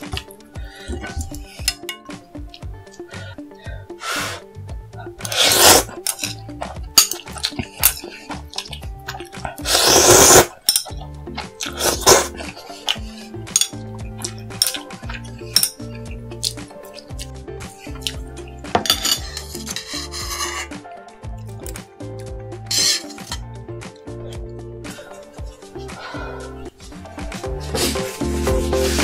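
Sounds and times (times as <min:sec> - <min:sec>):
utensils clinking on dishes: 0:00.0 - 0:02.2, 0:05.2 - 0:20.8, 0:22.6 - 0:23.4
background music with bass beat: 0:00.0 - 0:29.0
noisy eating bursts: 0:05.1 - 0:13.4.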